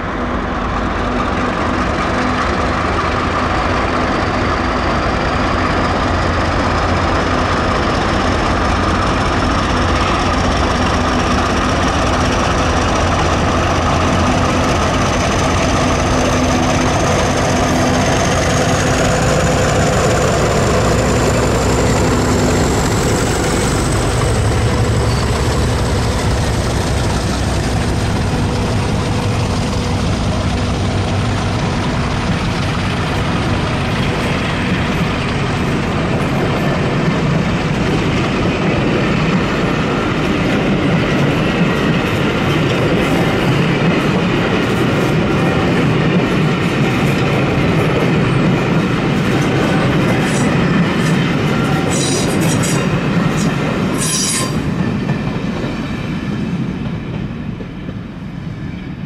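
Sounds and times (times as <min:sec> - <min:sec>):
diesel locomotive engines: 0:00.0 - 0:59.0
train wheel clatter: 0:00.7 - 0:58.3
high wheel squeals: 0:51.6 - 0:54.7.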